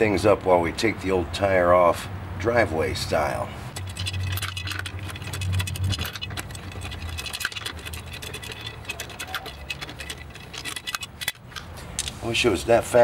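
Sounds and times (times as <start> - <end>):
lug wrench clicking and rattling: 3.7 - 12.2.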